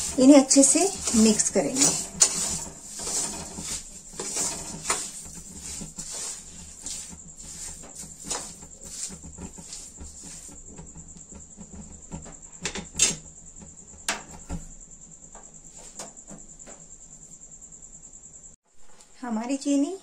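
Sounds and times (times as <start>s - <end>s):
spoon scraping metal pan: 0.0s - 10.8s.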